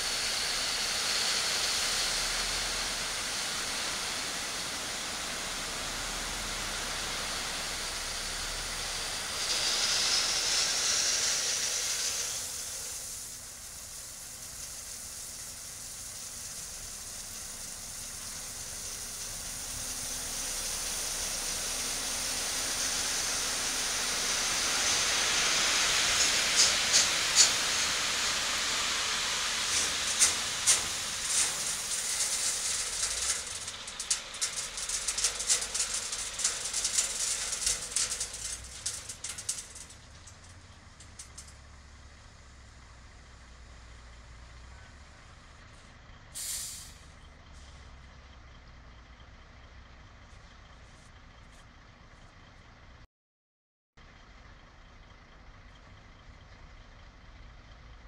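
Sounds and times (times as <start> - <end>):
gravel pouring from tipper: 0.0 - 41.5.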